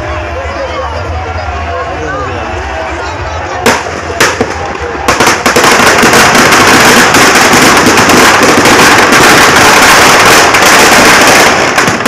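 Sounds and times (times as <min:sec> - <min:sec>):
firecrackers crackling: 0:03.4 - 0:12.0.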